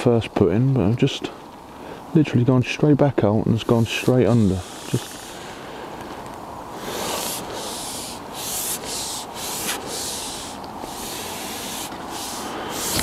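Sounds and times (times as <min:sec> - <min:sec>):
rubbing sliding hiss: 0:03.6 - 0:05.8, 0:06.7 - 0:13.0.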